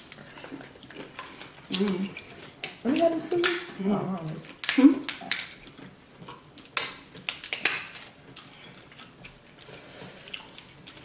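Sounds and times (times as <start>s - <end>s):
crab shells cracking: 4.4s - 8.5s.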